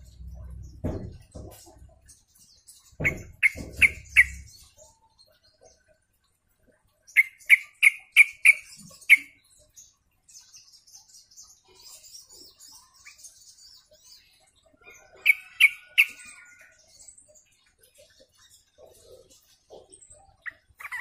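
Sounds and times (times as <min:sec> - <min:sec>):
dull low thumps: 0:00.0 - 0:01.9
bird chirping: 0:00.0 - 0:21.0.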